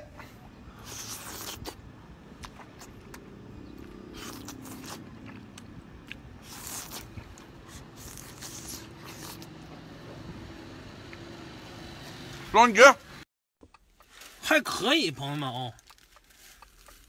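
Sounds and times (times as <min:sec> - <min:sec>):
slurping hisses: 0:00.7 - 0:01.8
chewing with wet clicks: 0:00.8 - 0:09.8, 0:15.3 - 0:17.0.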